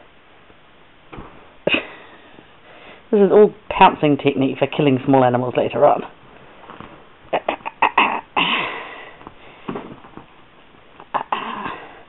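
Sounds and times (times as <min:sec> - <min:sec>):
bedding rustling: 0:00.0 - 0:12.0
soft scuffs and thumps: 0:01.0 - 0:01.6, 0:06.3 - 0:07.2, 0:09.1 - 0:11.1.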